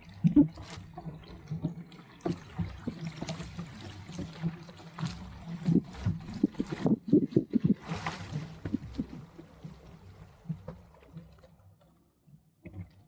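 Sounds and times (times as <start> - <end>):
water splashing against boat hull: 0.0 - 13.0.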